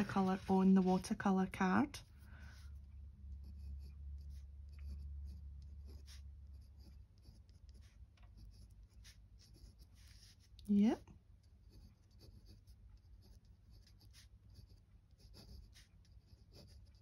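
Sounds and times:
pen nib scratching on card: 3.3 - 10.8, 11.4 - 17.0.

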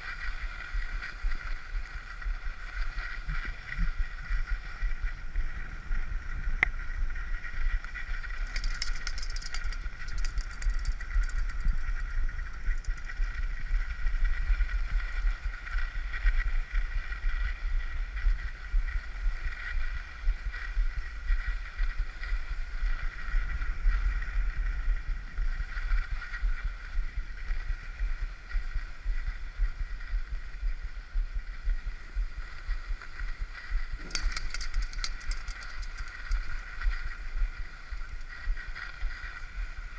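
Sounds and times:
brief crackling: 34.0 - 36.5.

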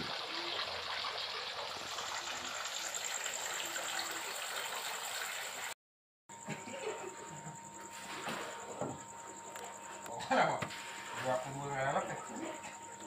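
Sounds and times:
running water rushing: 0.0 - 5.8.

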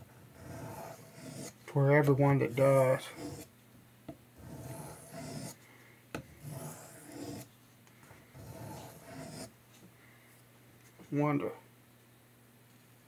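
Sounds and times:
knife scraping on sharpening stone: 0.4 - 1.5, 2.5 - 3.5, 4.4 - 5.6, 6.4 - 7.5.

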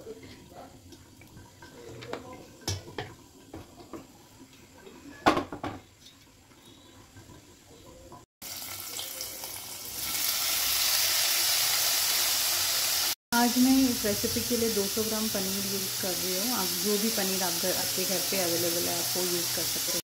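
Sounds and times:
oil sizzling in frying pan: 8.4 - 20.0.

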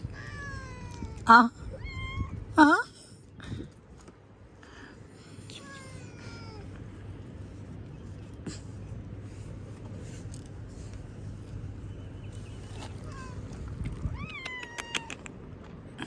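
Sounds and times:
kitten meowing: 14.0 - 15.3.

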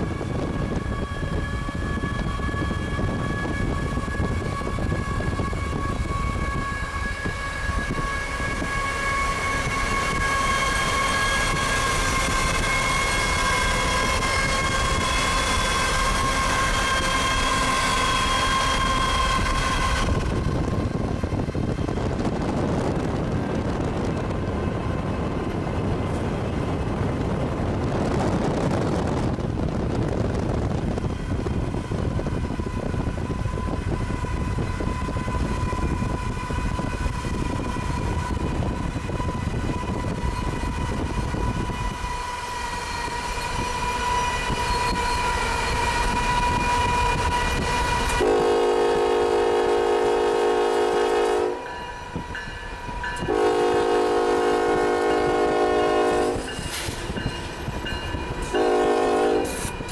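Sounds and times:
passing train rumble: 0.0 - 59.9
rail noise: 0.0 - 59.9
locomotive horn chord: 48.2 - 51.8, 53.2 - 56.4, 58.5 - 59.6.

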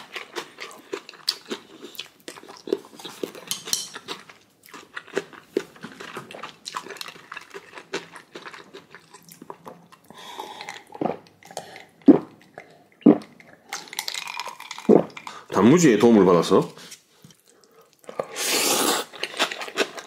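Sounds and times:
person chewing: 0.0 - 15.5, 17.2 - 20.0
utensils clinking against a dish: 3.2 - 4.1.

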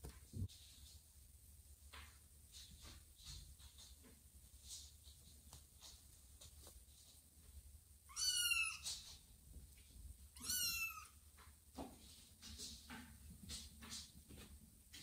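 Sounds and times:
kitten meowing: 8.1 - 8.8, 10.4 - 11.2.

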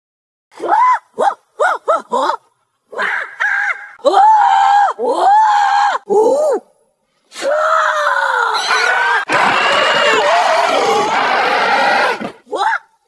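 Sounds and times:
loud arching cries: 7.4 - 12.4
long cry falling in pitch: 7.9 - 12.4.

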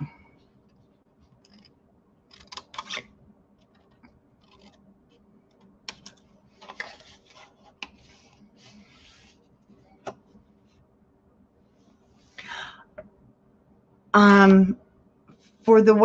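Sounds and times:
paper rustling: 6.0 - 9.4.

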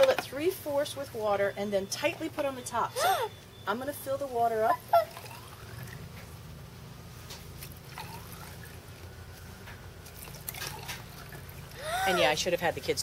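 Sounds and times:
water trickling into test tube: 4.9 - 6.0, 7.7 - 9.1, 10.0 - 12.4.

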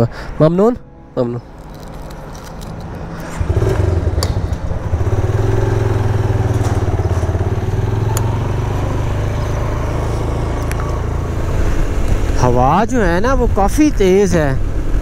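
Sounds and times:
motorcycle engine running: 2.8 - 12.4.

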